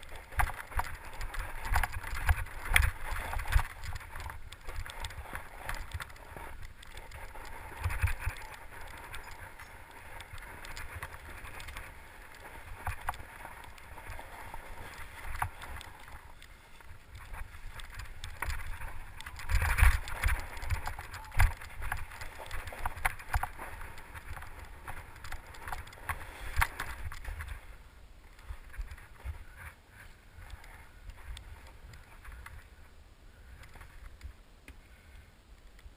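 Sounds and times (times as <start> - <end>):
bike rattling and knocking: 0.0 - 16.4, 17.1 - 27.5
bike tyres rolling over rocks: 0.0 - 32.9.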